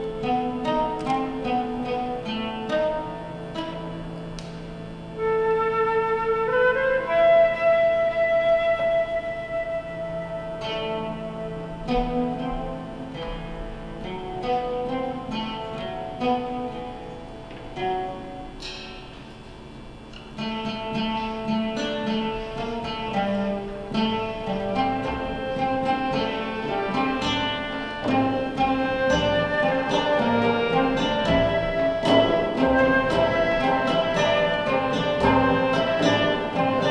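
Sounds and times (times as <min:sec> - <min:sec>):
bowed string notes: 0:00.0 - 0:19.2, 0:20.4 - 0:36.9
plucked lute strings: 0:00.0 - 0:36.9
flute: 0:05.1 - 0:13.0, 0:24.9 - 0:36.9.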